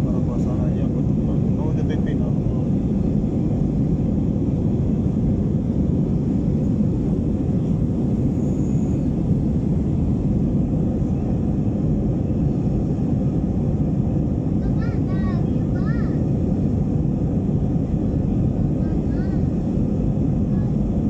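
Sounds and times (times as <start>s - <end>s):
jet cabin roar: 0.0s - 21.0s.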